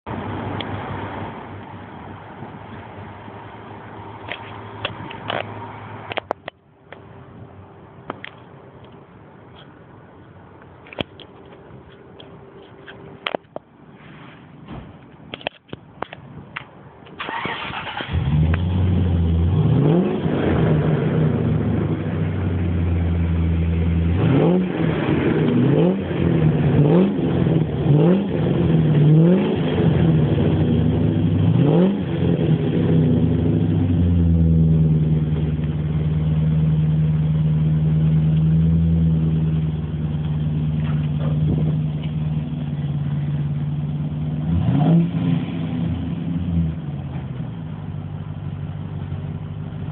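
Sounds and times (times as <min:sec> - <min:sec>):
car engine revving and idling: 0:17.3 - 0:49.9.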